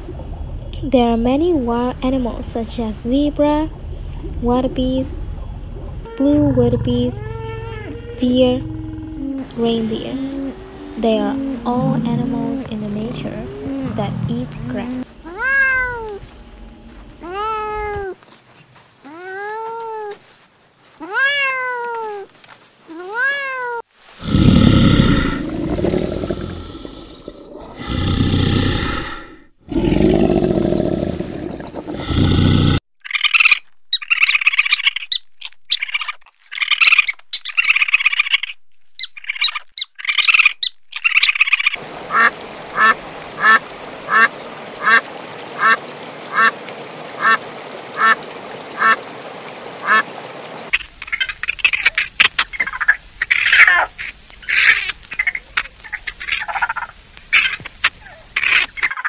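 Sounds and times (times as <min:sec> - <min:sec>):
deep animal calls: 0:05.4 - 0:16.1
duck quacking: 0:42.1 - 0:45.0, 0:47.2 - 0:47.4, 0:48.8 - 0:49.0, 0:49.8 - 0:50.1.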